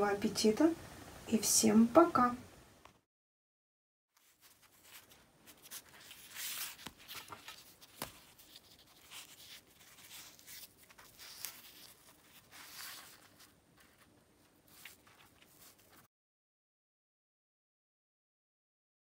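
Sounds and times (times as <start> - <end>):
flatbread crackly rustling: 4.2 - 16.1.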